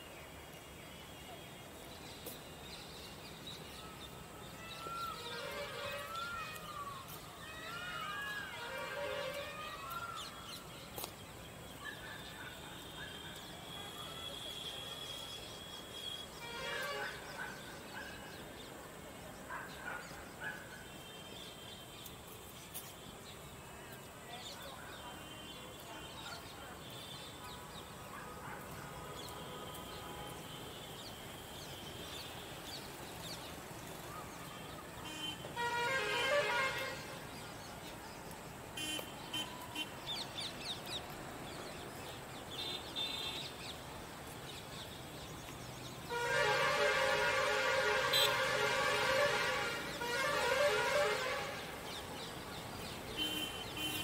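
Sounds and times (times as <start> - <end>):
distant vehicle horns: 4.8 - 6.8, 8.3 - 10.3, 12.7 - 18.1, 34.6 - 37.4, 38.7 - 40.0, 46.0 - 54.0.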